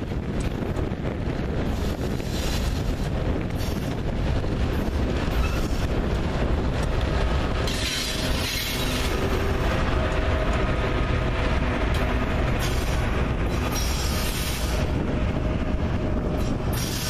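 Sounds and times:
diesel locomotive engines running: 0:00.0 - 0:17.0
train wheels rumbling on rails: 0:00.0 - 0:17.0
wheel squeal: 0:05.3 - 0:05.9, 0:07.6 - 0:09.2.

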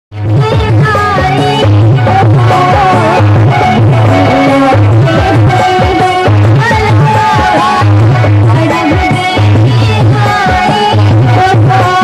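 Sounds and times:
dance music over loudspeakers: 0:00.2 - 0:12.0.

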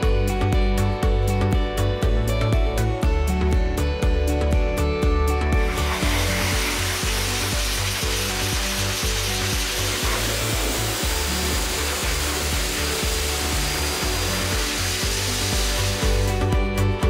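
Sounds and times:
background music with beat: 0:00.0 - 0:17.0
blow dryer blowing air: 0:05.4 - 0:17.0.

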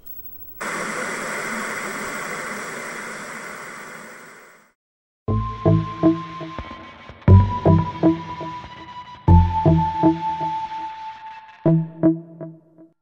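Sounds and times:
static hiss: 0:00.0 - 0:04.6.

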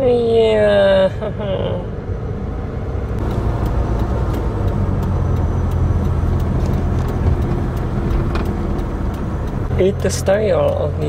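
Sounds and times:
car cabin engine and road rumble: 0:00.0 - 0:11.0.

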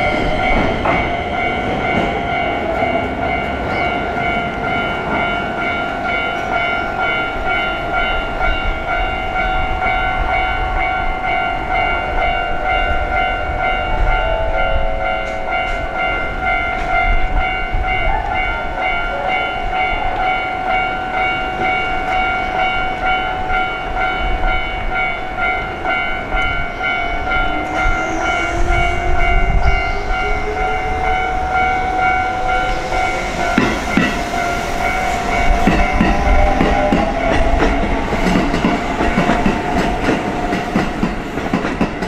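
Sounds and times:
electric train whine: 0:00.0 - 0:42.0
train low rumble: 0:00.0 - 0:42.0.

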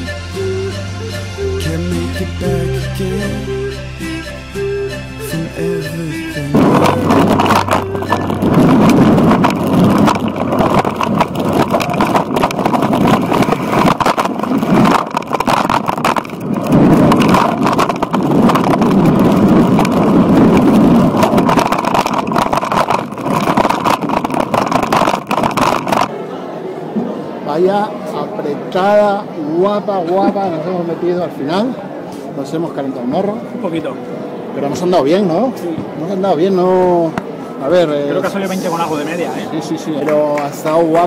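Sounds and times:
wind buffeting microphone: 0:06.5 - 0:26.1
bike tyres rattling over ground: 0:06.6 - 0:26.1.

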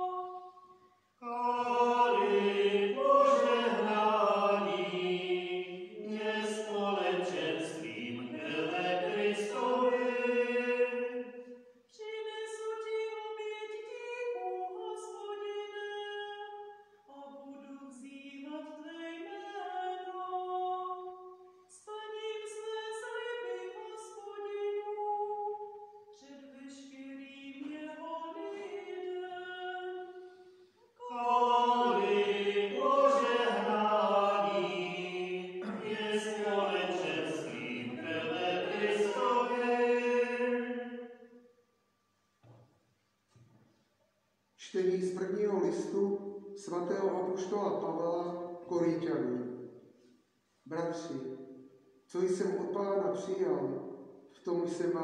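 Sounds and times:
cantor chanting: 0:01.2 - 0:11.2, 0:31.0 - 0:41.0, 0:44.6 - 0:49.5.

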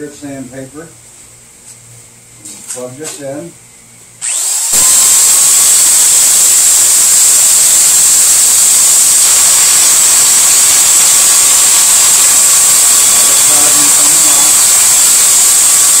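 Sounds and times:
power drill whirring: 0:04.2 - 0:16.0.

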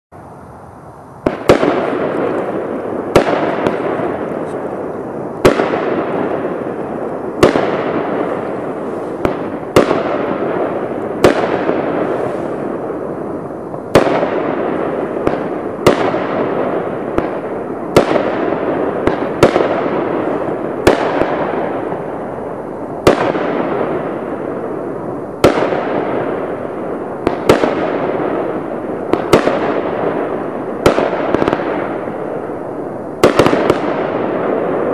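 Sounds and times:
hissing firework tails: 0:00.2 - 0:34.9
firework cake shots: 0:01.2 - 0:13.0.

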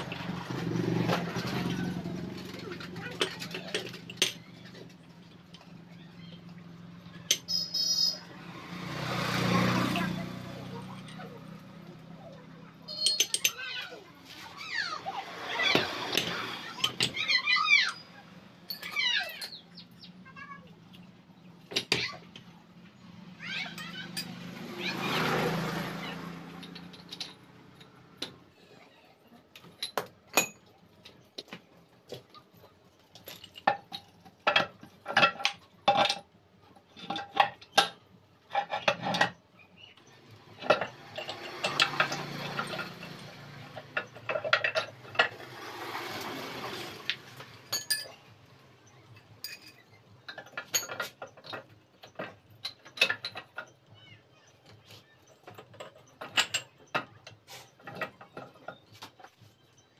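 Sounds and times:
steel gears clanking: 0:12.7 - 0:14.0, 0:14.6 - 0:20.0, 0:23.4 - 0:28.4, 0:36.9 - 0:59.9.

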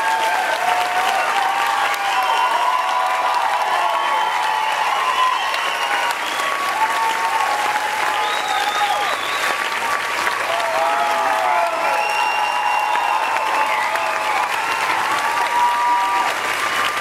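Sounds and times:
audience applauding: 0:00.0 - 0:17.0
people cheering: 0:00.0 - 0:17.0
whistles: 0:03.9 - 0:06.8, 0:08.1 - 0:09.8, 0:11.8 - 0:14.8.

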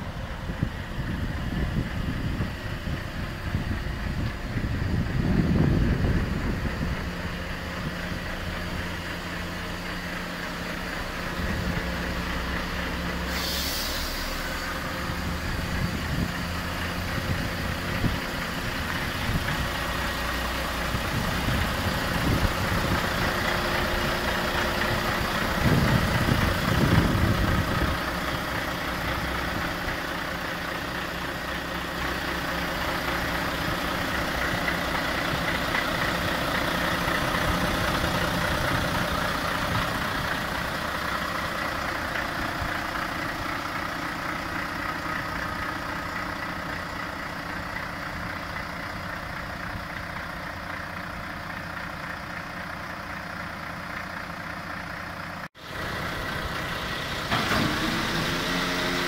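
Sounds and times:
diesel engine idling: 0:00.0 - 0:59.0
hiss of air: 0:13.2 - 0:15.0.

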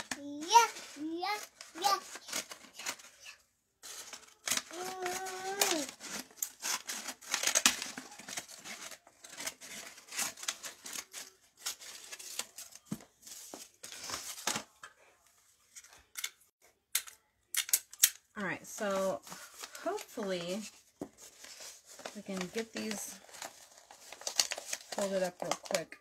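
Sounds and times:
paper rustling and crinkling: 0:00.0 - 0:16.2, 0:18.8 - 0:26.0
scissors snipping paper: 0:00.1 - 0:03.2, 0:03.9 - 0:12.6.

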